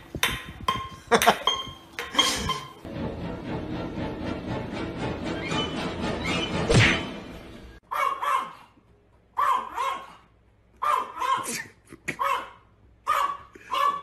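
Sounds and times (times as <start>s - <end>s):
music: 2.9s - 7.8s
small dog barking: 7.9s - 8.7s, 9.4s - 10.2s, 10.8s - 11.5s, 12.2s - 14.0s.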